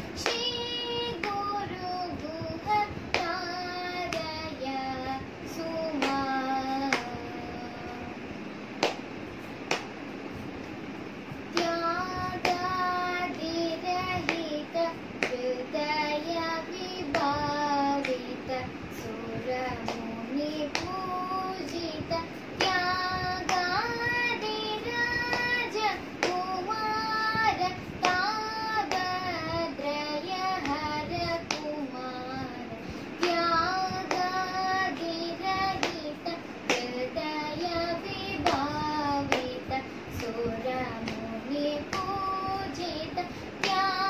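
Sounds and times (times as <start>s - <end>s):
hand slaps and claps: 1.2s - 1.5s, 2.7s - 4.4s, 5.9s - 7.2s, 8.8s - 9.1s, 9.7s - 10.0s, 11.5s - 11.8s, 12.4s - 12.7s, 17.1s - 17.3s, 19.8s - 20.1s, 20.7s - 21.0s, 22.6s - 29.4s, 31.5s - 31.8s, 33.2s - 37.8s, 38.4s - 40.4s, 41.0s - 41.3s, 41.9s - 43.0s, 43.6s - 44.0s
girl singing solo: 11.6s - 44.0s.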